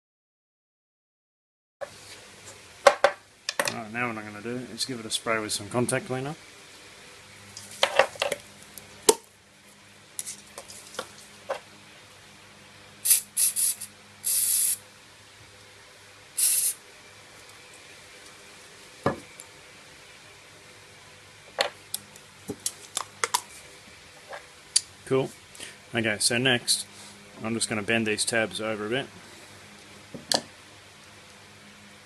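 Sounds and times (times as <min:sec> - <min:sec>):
aerosol can spraying: 0:13.0 - 0:14.8, 0:16.4 - 0:16.8.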